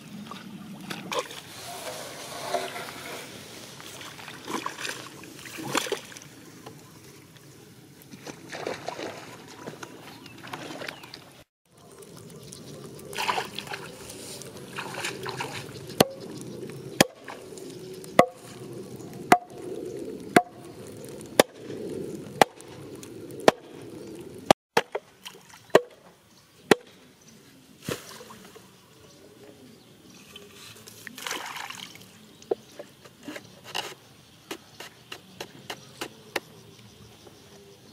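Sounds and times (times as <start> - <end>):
water sloshing: 0.2 - 6.5, 8.1 - 16.4.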